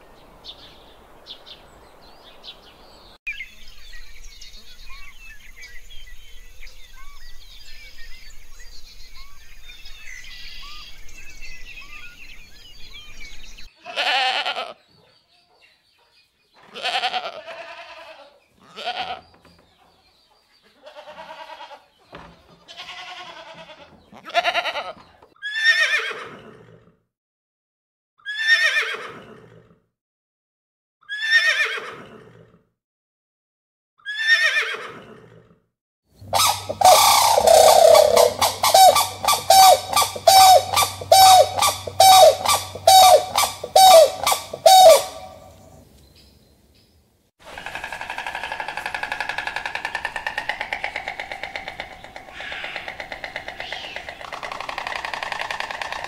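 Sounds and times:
goats bleating: 13.8s - 14.8s, 16.7s - 19.2s, 20.8s - 21.8s, 22.7s - 25.0s.

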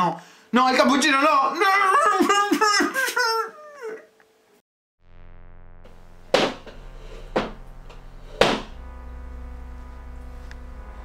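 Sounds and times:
low synthesizer drone: 5.0s - 11.0s
sharp loud synth hits: 5.0s - 11.0s.

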